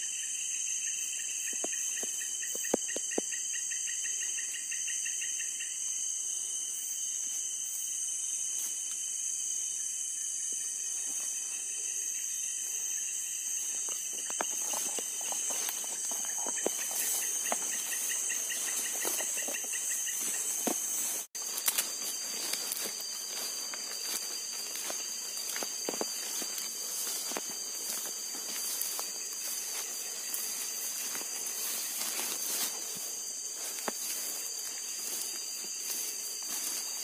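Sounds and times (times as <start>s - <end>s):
crickets and insects trilling: 0.0s - 37.0s
footsteps crunching grass and leaves: 8.3s - 9.0s, 10.5s - 11.8s, 12.6s - 37.0s.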